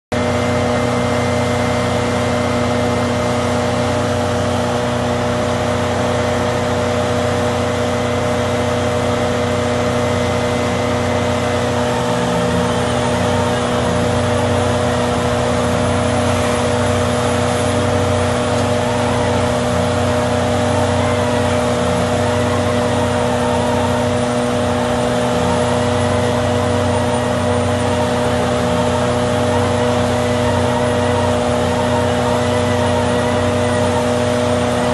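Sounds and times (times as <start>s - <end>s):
shredder machine drone: 0.1s - 34.9s.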